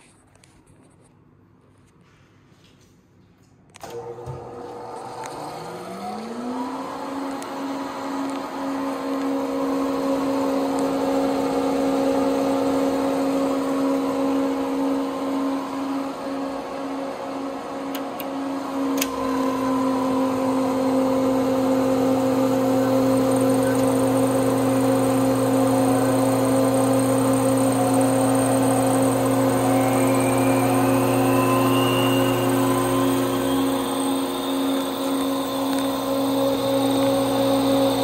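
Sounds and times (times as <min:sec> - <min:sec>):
hard disk motor whine: 0:03.9 - 0:38.0
click: 0:19.0 - 0:19.2, 0:35.0 - 0:35.9.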